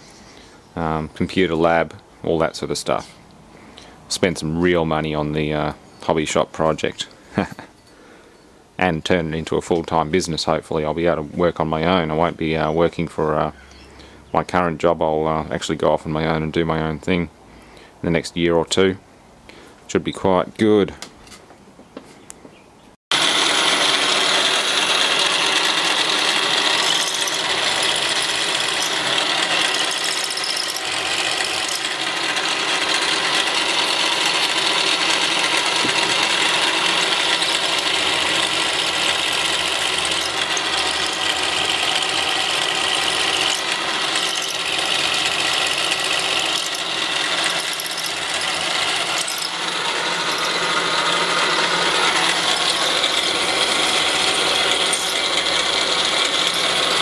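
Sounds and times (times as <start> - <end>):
mill drill cutting metal: 23.1 - 57.0.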